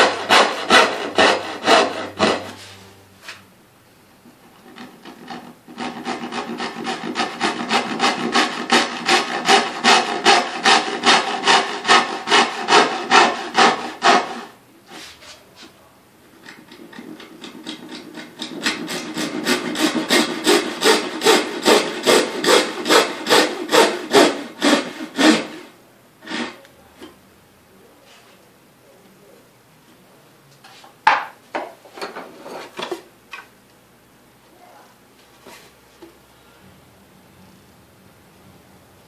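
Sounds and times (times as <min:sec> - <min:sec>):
handsaw cutting wood: 0:00.0 - 0:02.8, 0:04.6 - 0:15.1, 0:16.4 - 0:26.6.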